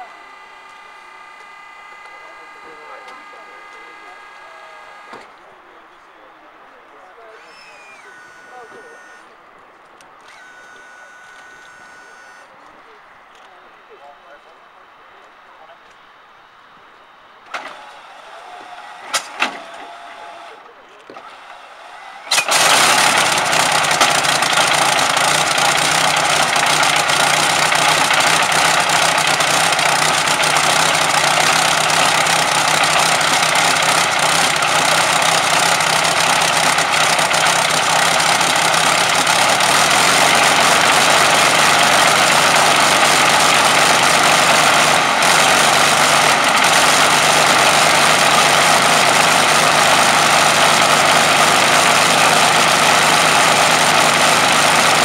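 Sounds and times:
aero engine running loud: 0.0s - 6.4s, 21.2s - 55.0s.

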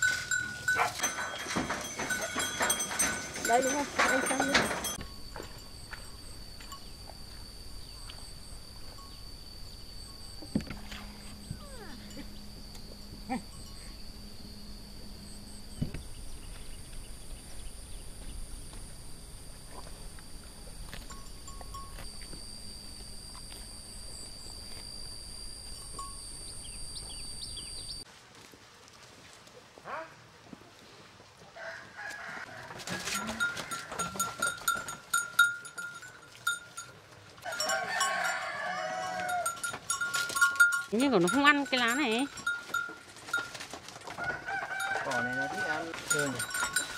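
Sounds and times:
bell ringing: 0.0s - 6.0s, 20.4s - 28.0s, 37.5s - 43.6s, 46.0s - 46.9s
thin high whine: 0.0s - 28.0s.

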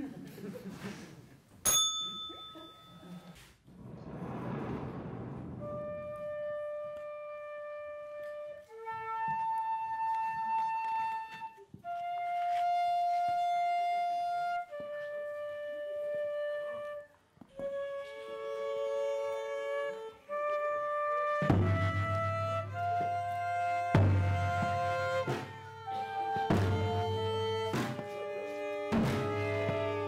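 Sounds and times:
sudden deep sound: 3.6s - 6.4s
flute playing long notes: 5.6s - 30.0s.

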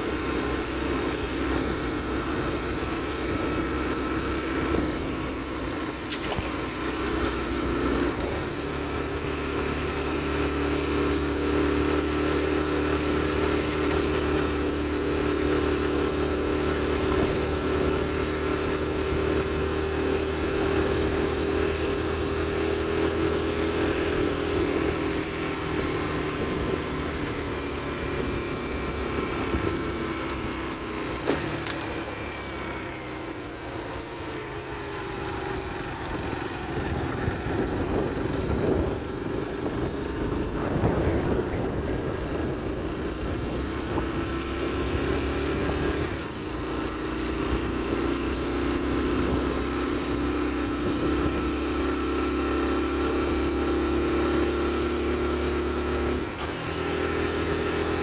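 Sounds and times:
motorcycle engine running: 0.0s - 58.0s
wind buffeting microphone: 35.8s - 46.6s.

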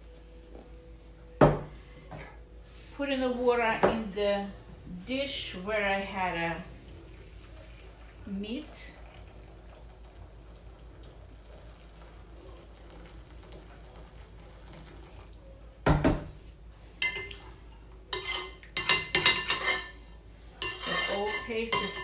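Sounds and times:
water pouring into a glass bowl: 6.9s - 15.4s.

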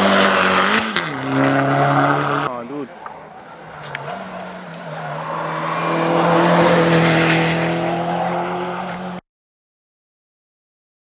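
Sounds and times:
mini race car engine revving: 3.8s - 9.2s.

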